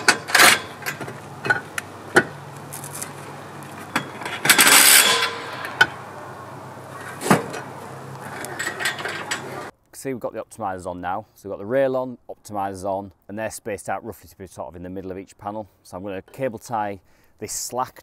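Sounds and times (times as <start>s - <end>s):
metal rails clinking and knocking: 0.0s - 6.0s, 7.0s - 9.7s.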